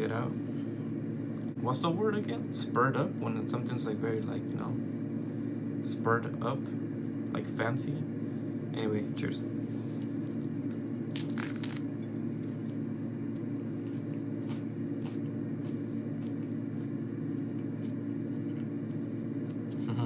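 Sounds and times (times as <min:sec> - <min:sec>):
steady low hum: 0:00.0 - 0:20.0
person biting with crunch: 0:10.0 - 0:12.0
chewing with mouth clicks: 0:13.6 - 0:19.9.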